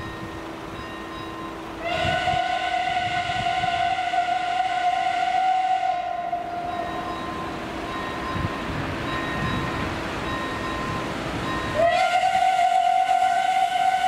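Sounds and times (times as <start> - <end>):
steam whistle blast: 1.8 - 7.3, 11.6 - 14.0.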